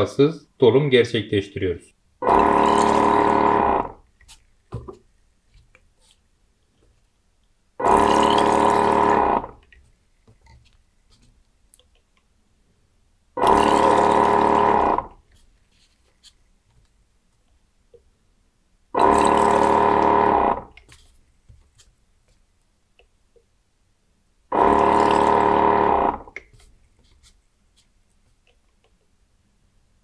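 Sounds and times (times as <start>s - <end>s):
pump humming: 2.2s - 4.0s, 7.8s - 9.7s, 13.4s - 15.2s, 19.0s - 20.9s, 24.5s - 26.5s.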